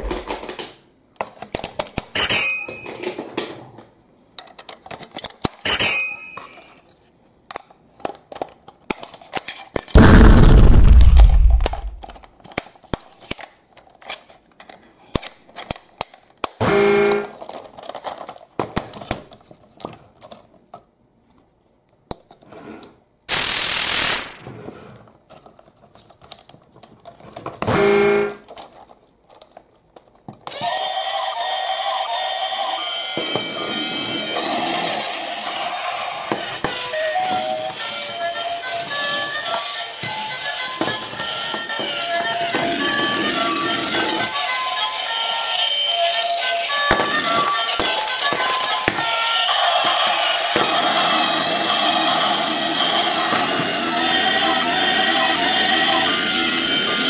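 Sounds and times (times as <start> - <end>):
plastic toy clicks and knocks: 4.4 - 6.6, 7.5 - 10.0, 11.5 - 20.4, 46.6 - 50.7
deep burst: 10.0 - 12.2.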